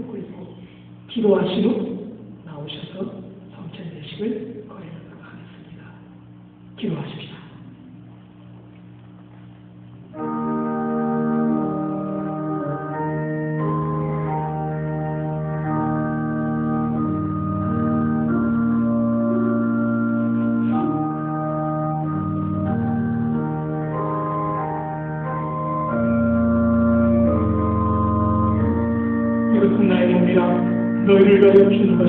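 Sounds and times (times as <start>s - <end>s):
electronic organ chords: 9.8s - 32.0s.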